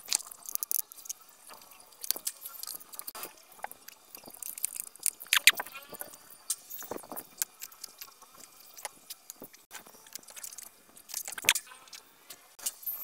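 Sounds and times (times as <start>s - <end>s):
clicks and rattles of connectors: 0.0s - 1.2s.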